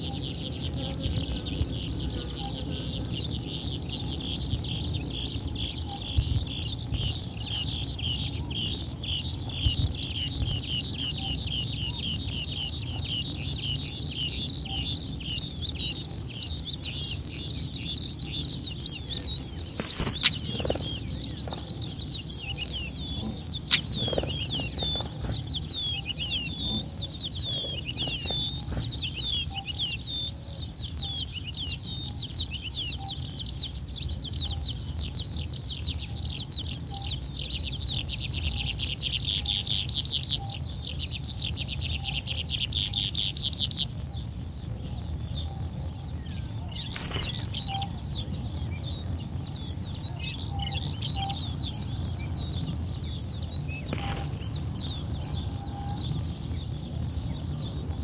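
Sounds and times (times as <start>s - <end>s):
nestlings begging chirps: 0.0s - 58.0s.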